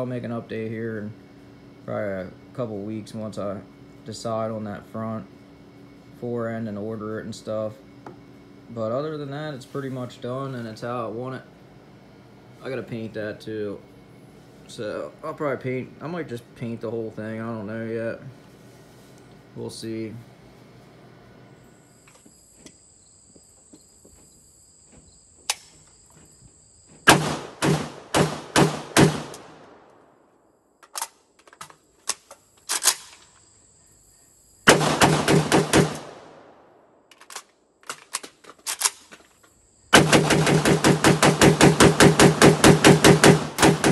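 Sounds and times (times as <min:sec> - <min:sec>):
high insect buzz: 0:20.4 - 0:29.4, 0:31.8 - 0:36.0, 0:39.0 - 0:43.9
pistol gunshots echoing: 0:27.1 - 0:29.9, 0:34.7 - 0:36.6, 0:40.0 - 0:43.9.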